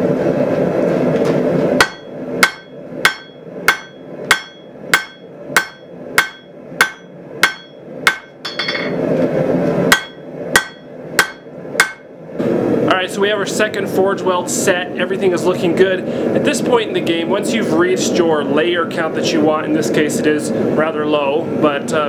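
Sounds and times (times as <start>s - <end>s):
hammer ringing on anvil: 1.8s - 9.0s, 9.9s - 12.1s.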